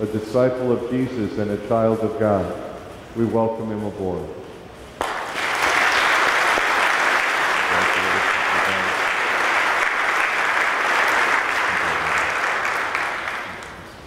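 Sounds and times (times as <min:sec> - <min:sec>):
congregation applauding: 0:05.0 - 0:13.9.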